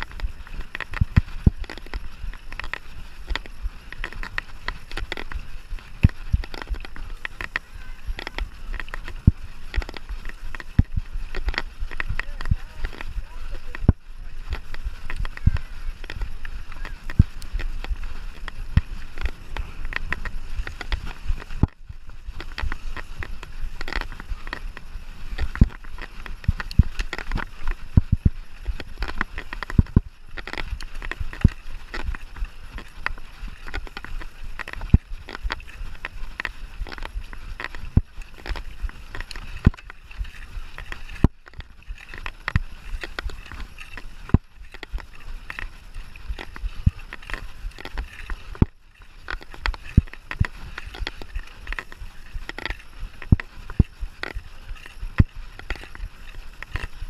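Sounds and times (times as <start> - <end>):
bike tyres rumbling on trail: 0.0 - 57.0
bike rattling and knocking: 6.0 - 48.7.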